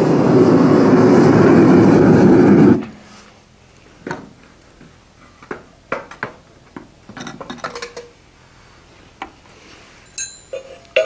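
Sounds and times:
metal tools clinking: 0:07.2 - 0:08.1, 0:10.0 - 0:11.0.

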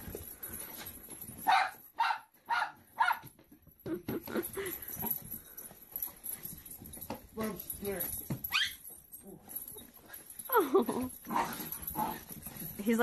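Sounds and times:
dog barking: 0:01.5 - 0:03.3
dog whining: 0:08.4 - 0:08.9.

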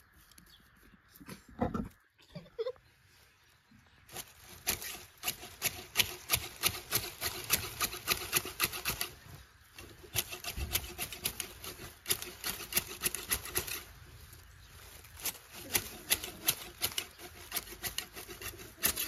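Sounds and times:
hedge shears snipping grass: 0:04.1 - 0:19.0.

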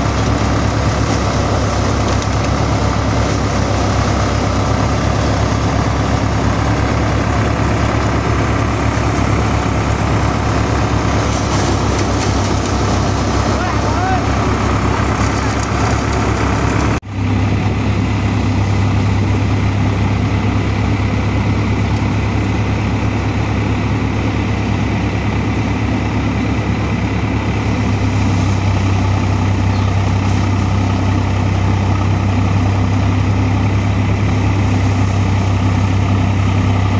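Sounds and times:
diesel engine running: 0:00.0 - 0:36.9
thresher drum whirring: 0:00.0 - 0:36.9.

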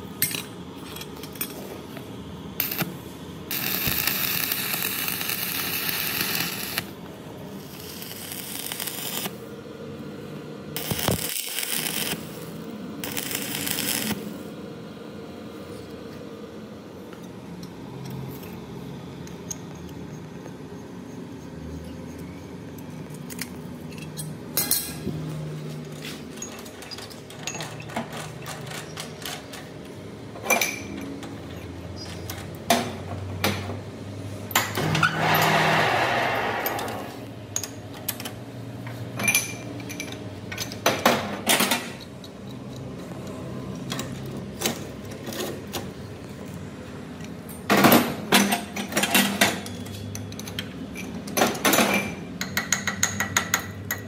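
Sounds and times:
metal tools clinking and knocking: 0:00.2 - 0:01.8, 0:22.8 - 0:25.0, 0:25.9 - 0:29.7, 0:39.2 - 0:42.8
short rushing noise: 0:35.2 - 0:37.2.

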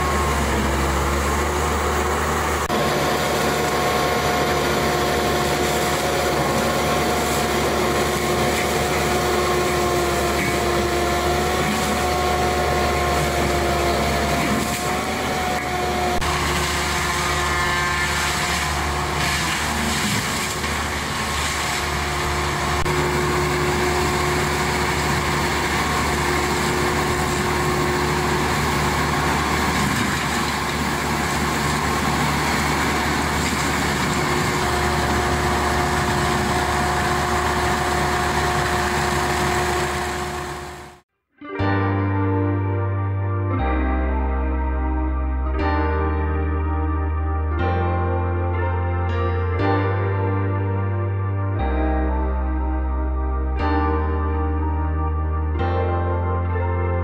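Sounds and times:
mulching head whining: 0:00.0 - 0:41.0
diesel engine under load: 0:00.0 - 0:41.1.

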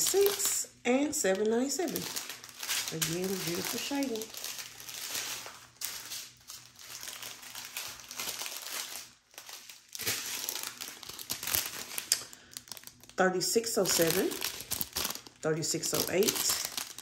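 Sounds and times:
plastic bags crinkling: 0:00.0 - 0:17.0.

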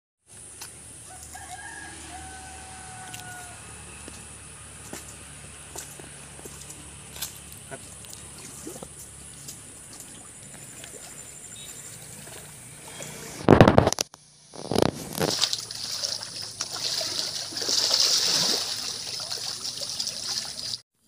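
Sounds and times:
water splashing and sloshing: 0:04.8 - 0:13.2, 0:14.9 - 0:20.8.

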